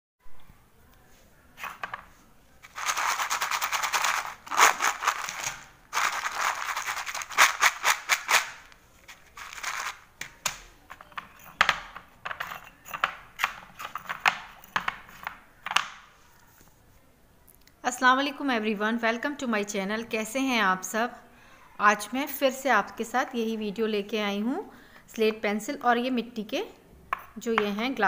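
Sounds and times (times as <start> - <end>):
pencil pieces clattering in a bowl: 2.6 - 10.1.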